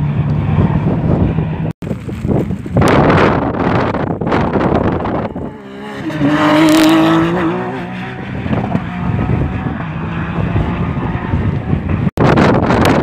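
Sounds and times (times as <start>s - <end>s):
rally car engine accelerating: 3.6s - 12.1s.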